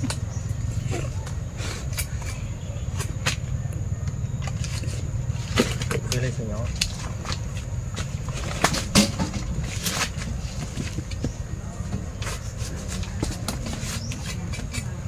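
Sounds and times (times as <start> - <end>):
steady low rumble: 0.0 - 15.0
knives clicking on fruit stems: 1.0 - 7.5.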